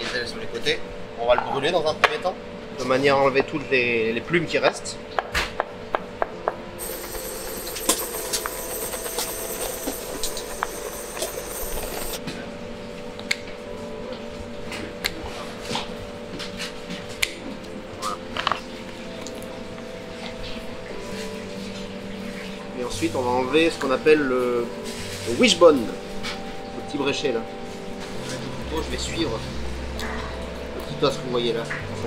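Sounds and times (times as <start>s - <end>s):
steady low hum: 0.0s - 32.0s
blowtorch hissing: 6.8s - 12.2s.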